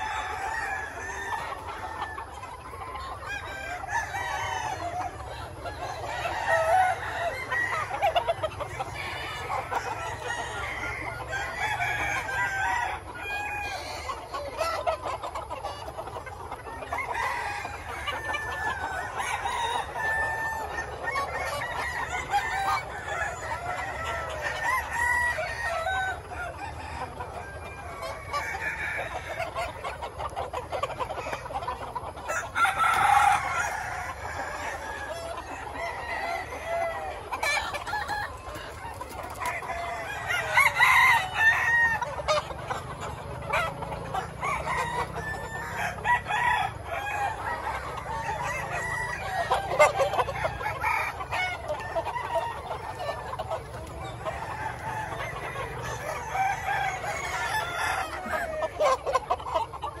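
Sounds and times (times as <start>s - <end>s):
chickens clucking: 0.0s - 60.0s
roosters crowing: 0.0s - 60.0s.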